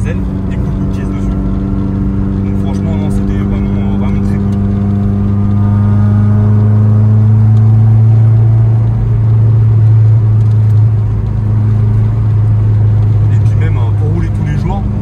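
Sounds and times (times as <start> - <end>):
car engine droning: 0.0 - 15.0.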